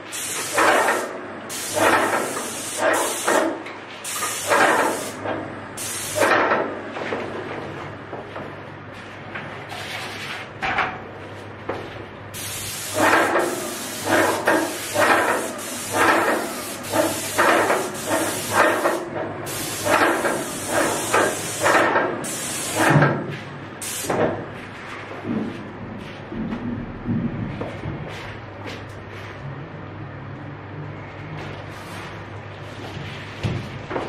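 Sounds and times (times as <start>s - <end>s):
paint sprayer hissing: 0.0s - 5.2s, 5.8s - 6.4s, 12.3s - 22.9s, 23.8s - 24.1s
sprayer rhythmic pulse: 12.7s - 22.9s.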